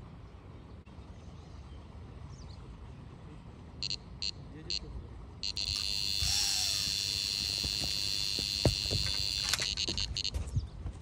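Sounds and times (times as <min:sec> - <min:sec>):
bite alarm high tone: 0:05.4 - 0:10.3.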